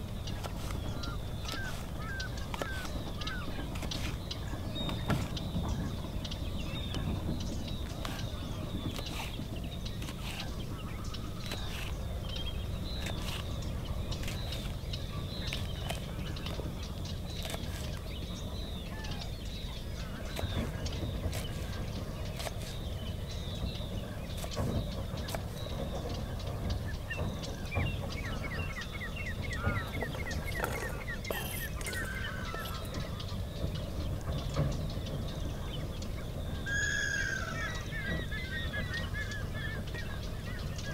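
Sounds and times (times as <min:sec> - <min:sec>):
birds chirping: 0:00.0 - 0:40.9
bird chattering call: 0:28.2 - 0:33.9, 0:36.6 - 0:40.8.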